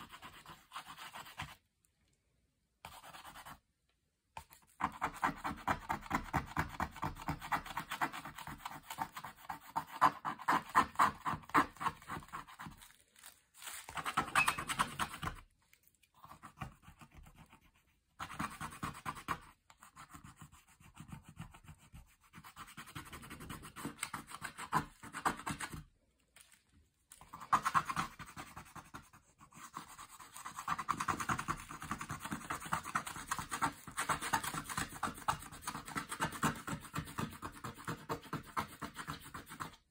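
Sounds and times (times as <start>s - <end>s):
tool scraping card coating: 13.9s - 15.4s.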